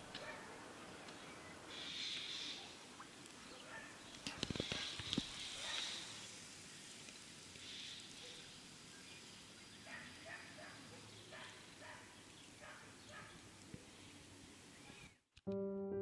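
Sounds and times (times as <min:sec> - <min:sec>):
water flowing in a canal: 0:00.0 - 0:15.1.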